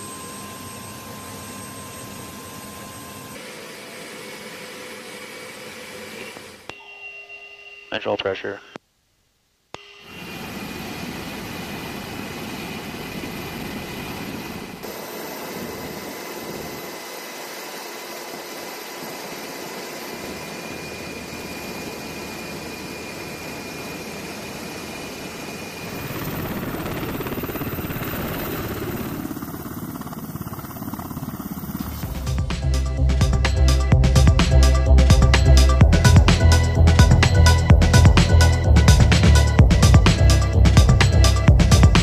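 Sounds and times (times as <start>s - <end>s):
helicopter turbine whine: 0.0s - 8.5s, 10.0s - 42.0s.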